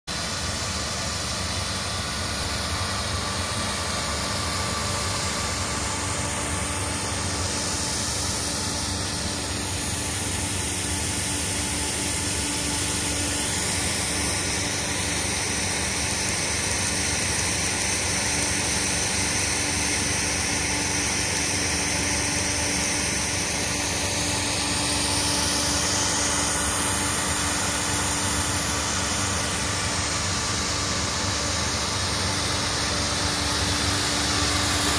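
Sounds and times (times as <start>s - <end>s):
fan hum: 0.1s - 34.9s
snow gun air and water spray: 0.2s - 34.9s.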